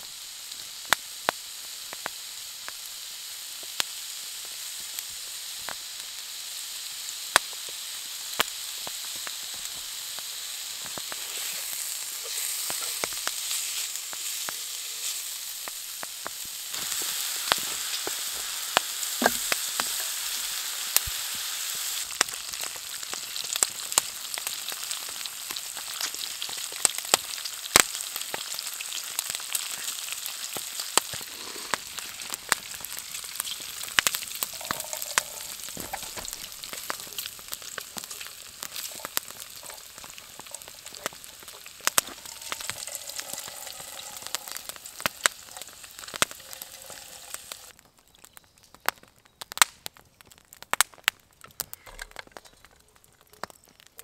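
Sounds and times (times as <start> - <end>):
pork sizzling in a frying pan: 0.0 - 48.8.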